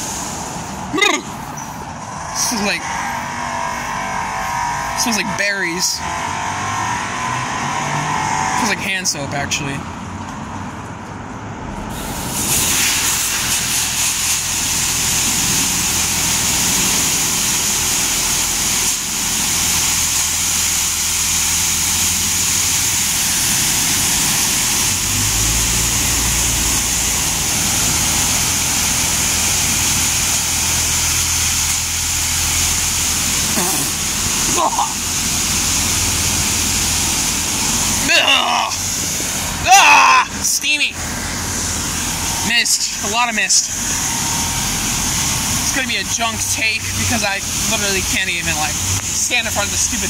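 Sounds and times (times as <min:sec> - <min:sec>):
high-pressure water spray hiss: 0:00.0 - 0:05.2, 0:11.9 - 0:50.0
low hum: 0:00.0 - 0:08.8.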